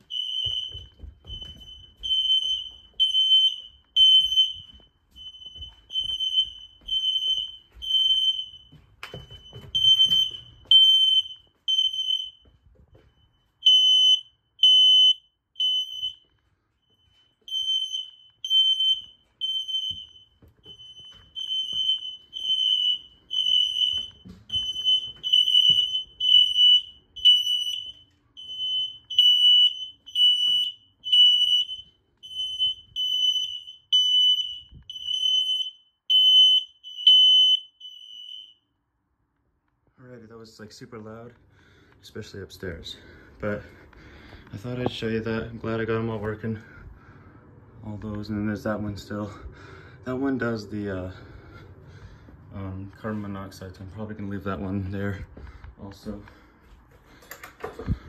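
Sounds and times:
smoke alarm beeping: 0:00.0 - 0:38.8.

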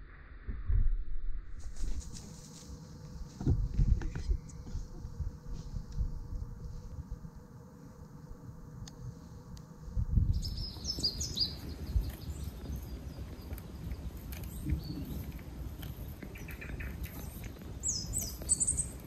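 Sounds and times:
steady low rumble: 0:00.0 - 0:19.0
small birds chirping: 0:10.2 - 0:19.0.

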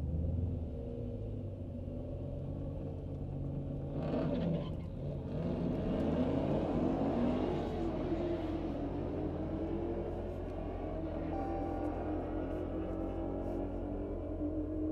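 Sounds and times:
car engine running inside cabin: 0:00.0 - 0:14.9.

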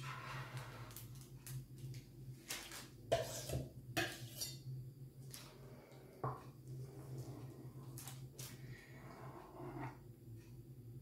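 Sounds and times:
spatula scraping frosting: 0:00.0 - 0:01.1, 0:03.1 - 0:04.6, 0:06.8 - 0:10.0.

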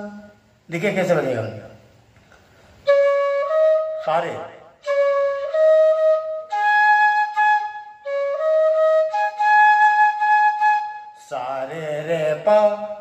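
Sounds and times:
man speaking: 0:00.0 - 0:01.8, 0:04.0 - 0:04.7
bamboo flute playing held notes: 0:02.8 - 0:11.4.

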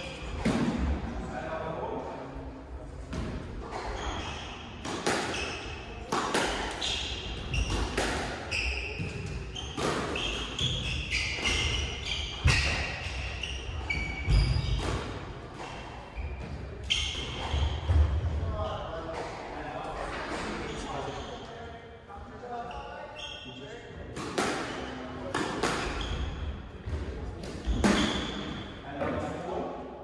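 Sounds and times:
squash ball hitting rackets and walls: 0:00.0 - 0:01.1, 0:03.1 - 0:18.4, 0:24.1 - 0:29.3
court shoes squeaking: 0:03.6 - 0:19.3, 0:20.2 - 0:21.6, 0:22.6 - 0:23.8, 0:24.4 - 0:28.8.

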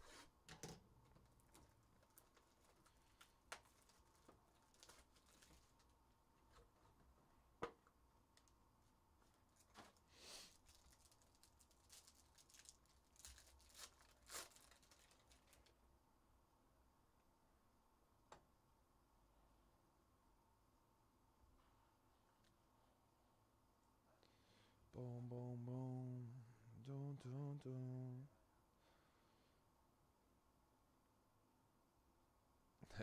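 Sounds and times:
foil pack rustling and tearing: 0:01.3 - 0:05.9, 0:09.5 - 0:15.7.

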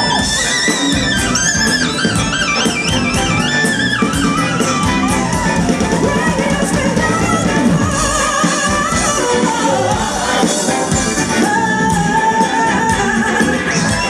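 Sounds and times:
drums with steady hi-hat beat: 0:00.0 - 0:14.0
high lead melody with trills: 0:00.0 - 0:14.0
live band playing: 0:00.0 - 0:14.0.

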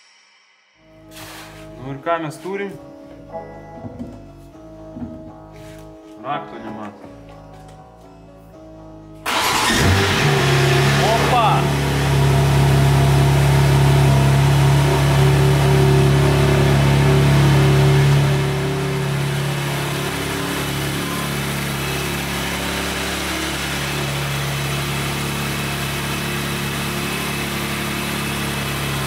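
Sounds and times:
car engine idling: 0:09.3 - 0:29.0.

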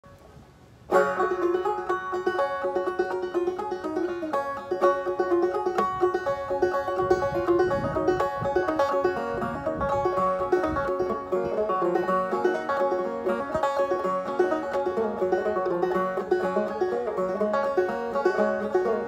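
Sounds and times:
banjo playing fiddle tune: 0:00.9 - 0:19.0.

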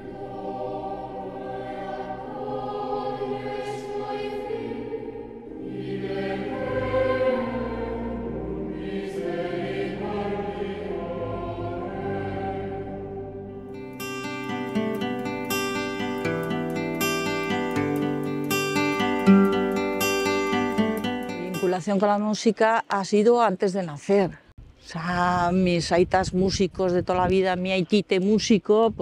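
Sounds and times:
choir singing slow chords: 0:00.0 - 0:21.6.

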